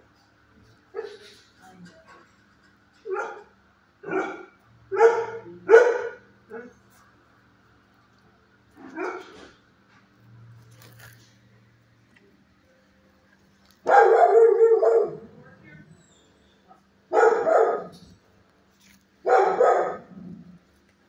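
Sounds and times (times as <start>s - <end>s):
dog barking: 0.9s - 1.3s, 3.1s - 6.7s, 8.8s - 9.5s, 13.8s - 15.4s, 17.1s - 18.0s, 19.2s - 20.2s.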